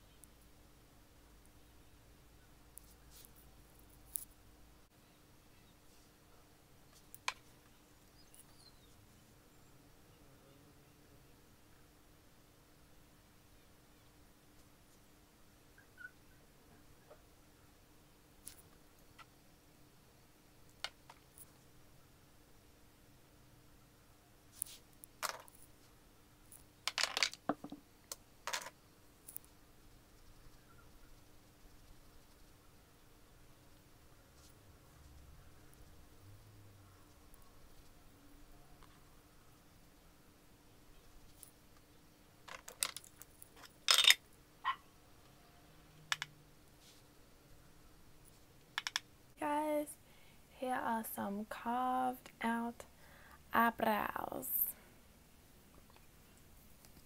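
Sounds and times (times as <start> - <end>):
faint steady hum: 0.0 - 57.0
makeup tools clicking and tapping: 48.8 - 49.0.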